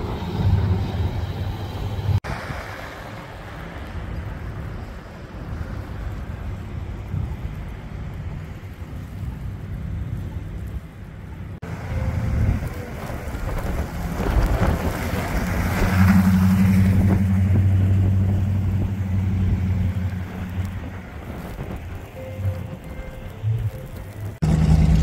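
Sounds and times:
low engine hum: 0:05.6 - 0:25.0.

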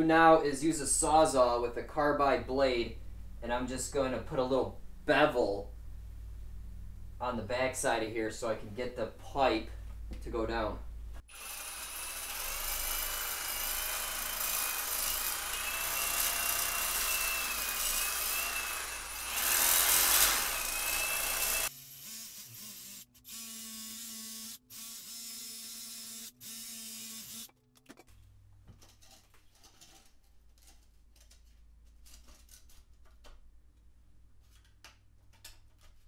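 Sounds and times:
reciprocating saw cutting block: 0:11.3 - 0:27.5.

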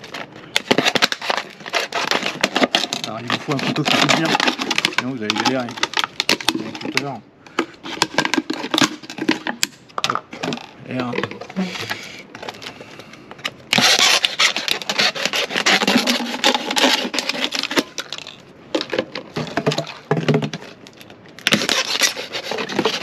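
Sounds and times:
knife sawing through plastic bottle: 0:00.7 - 0:05.5, 0:13.7 - 0:17.8, 0:21.5 - 0:23.0.

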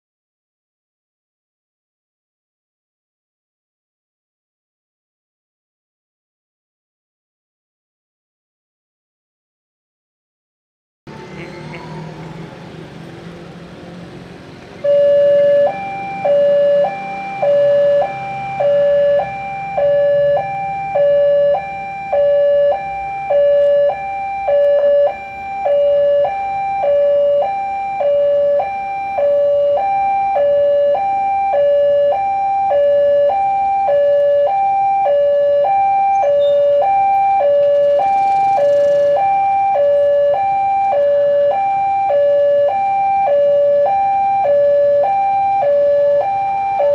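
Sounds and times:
low rumble of traffic: 0:11.1 - 0:46.9
level crossing two-tone alarm: 0:14.8 - 0:46.9.

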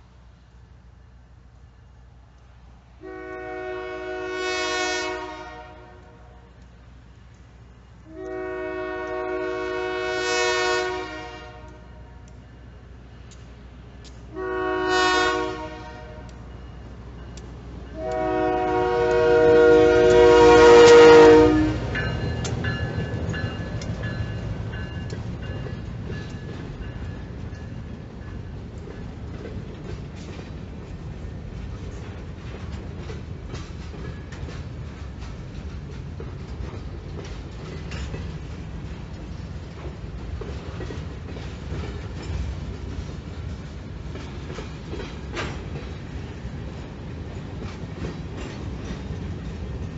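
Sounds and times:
locomotive horn blasts: 0:03.0 - 0:06.5, 0:08.0 - 0:12.3, 0:14.3 - 0:16.5, 0:17.9 - 0:22.0
train wheel clicks: 0:06.5 - 0:08.4, 0:09.0 - 0:09.3, 0:11.6 - 0:14.4, 0:16.2 - 0:49.9.

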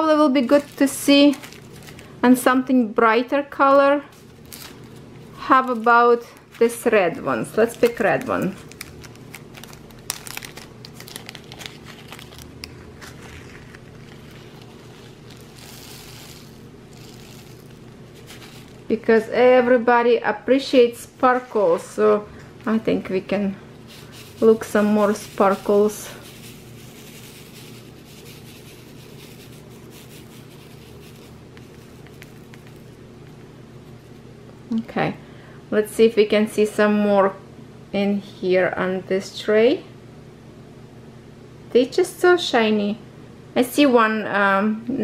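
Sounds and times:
plastic bag crinkling: 0:00.4 - 0:02.2, 0:04.1 - 0:18.9, 0:23.9 - 0:33.0
beads pouring into plastic tray: 0:14.6 - 0:18.8.

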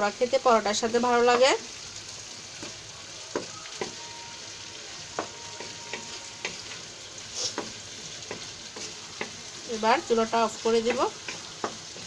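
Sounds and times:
food sizzling in oil: 0:00.0 - 0:12.0
spatula scraping pan: 0:05.1 - 0:09.6.

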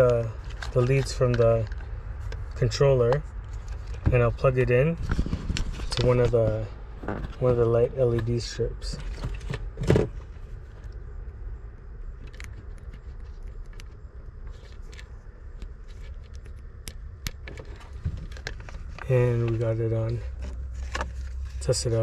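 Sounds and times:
low background rumble: 0:00.0 - 0:22.0
wires rustling: 0:12.1 - 0:22.0.

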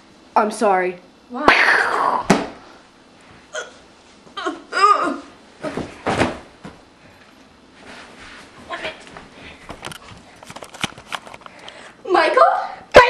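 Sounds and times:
girl's stifled vocal bursts: 0:04.4 - 0:05.3.

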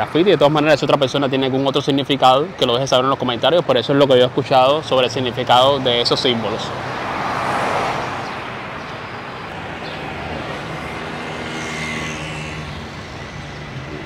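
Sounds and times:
vehicle passing close: 0:04.7 - 0:14.0.

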